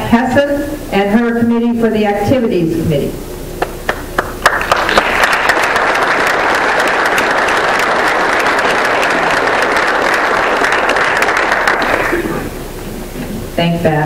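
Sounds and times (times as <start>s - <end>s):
audience applauding: 3.9s - 12.5s.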